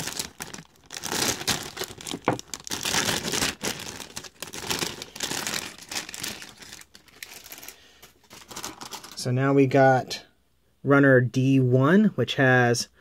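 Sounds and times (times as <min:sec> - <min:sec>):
plastic bags crinkling: 0:00.0 - 0:09.3.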